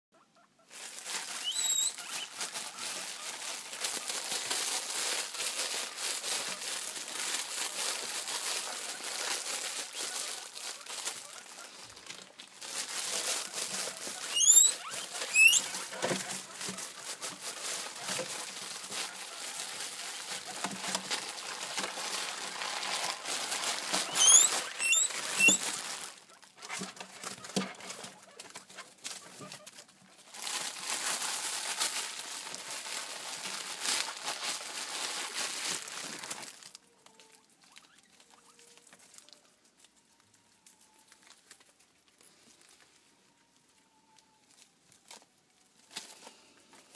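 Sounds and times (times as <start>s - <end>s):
guinea pigs squealing: 0.4s - 4.2s, 8.1s - 12.0s, 12.8s - 21.3s, 23.1s - 28.6s, 37.3s - 38.7s
rustling in wood shavings: 0.4s - 46.9s.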